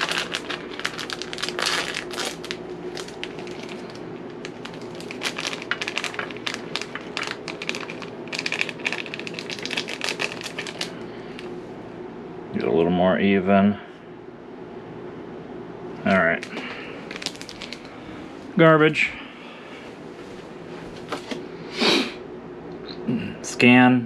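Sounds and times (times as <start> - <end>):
shredded cheese shaken out: 0.0 - 10.9
plastic packet crinkling: 0.0 - 11.5, 16.1 - 18.2.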